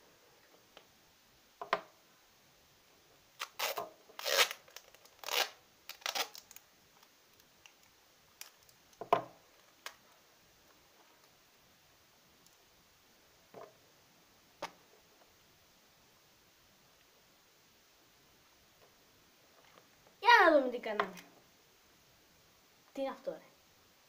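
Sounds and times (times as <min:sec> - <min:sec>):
sticky tape ripping off roll: 0:03.4 - 0:06.6.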